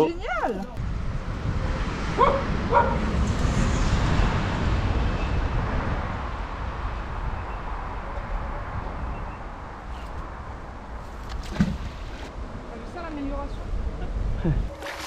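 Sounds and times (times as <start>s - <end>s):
dog yipping: 2.2s - 3.0s.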